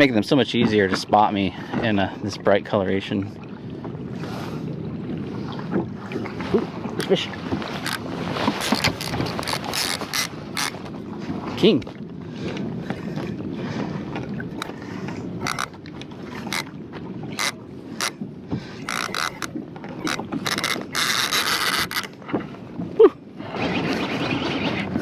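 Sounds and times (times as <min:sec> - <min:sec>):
reel drag buzzing: 0:07.0 - 0:11.0, 0:15.4 - 0:18.2, 0:18.8 - 0:22.2
fishing reel clicking: 0:18.9 - 0:22.1.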